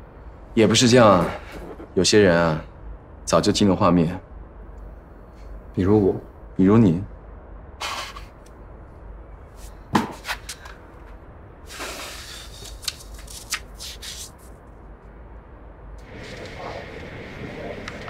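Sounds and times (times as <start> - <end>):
paper rustling: 12.2 - 14.6.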